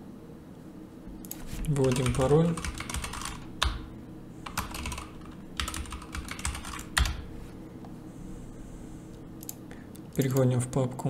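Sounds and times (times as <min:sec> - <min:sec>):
low steady hum: 0:00.0 - 0:11.0
keyboard and mouse clicking: 0:01.2 - 0:03.8, 0:04.4 - 0:07.2, 0:09.4 - 0:10.5.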